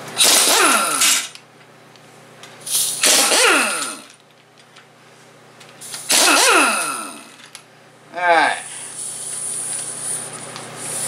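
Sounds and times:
impact wrench bursts: 0.2 - 1.4, 2.6 - 4.2, 5.8 - 7.6.

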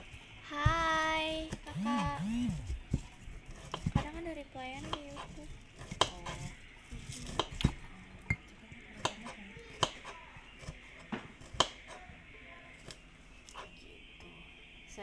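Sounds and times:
knife cutting shallot skins: 2.9 - 4.2, 4.8 - 7.8, 9.0 - 12.1.

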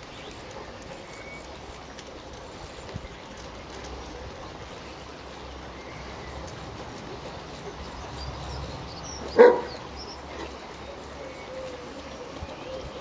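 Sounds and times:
large dog barking: 9.2 - 9.8.

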